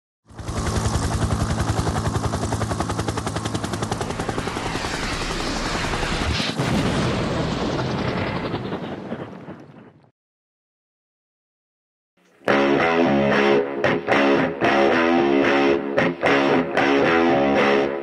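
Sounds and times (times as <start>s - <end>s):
rapid rattling pulses: 0.3s - 6.4s.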